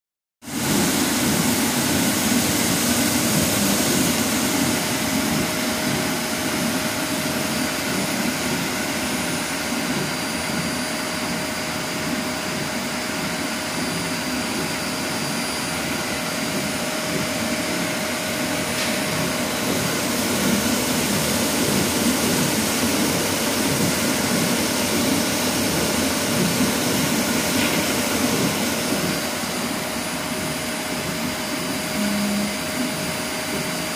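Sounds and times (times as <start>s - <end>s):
faint high whine: 31.6s - 33.1s
melanger whirring grind: 31.8s - 33.1s.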